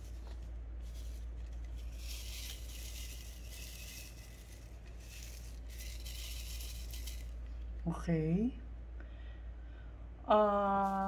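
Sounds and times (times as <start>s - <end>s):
beads rattling in plastic tray: 0.0s - 7.4s.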